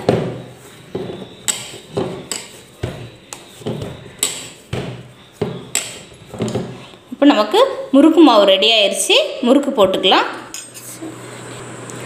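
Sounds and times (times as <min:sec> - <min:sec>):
dough knocking against bowl: 0:00.0 - 0:06.8.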